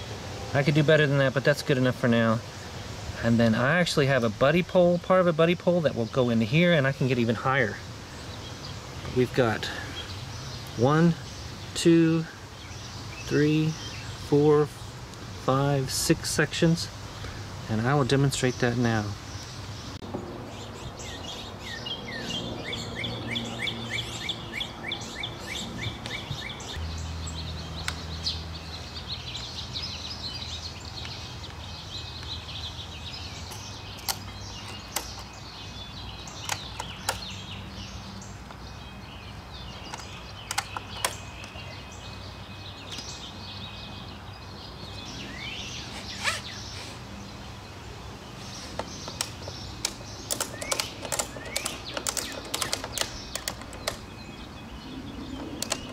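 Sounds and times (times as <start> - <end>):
songbirds chirping: 0.0 - 55.9
clicks and knocks of mast handling: 33.4 - 35.4, 36.3 - 37.3, 39.8 - 41.6, 48.6 - 54.1, 55.4 - 55.9
ratchet strap clicking: 48.8 - 54.0, 55.4 - 55.9.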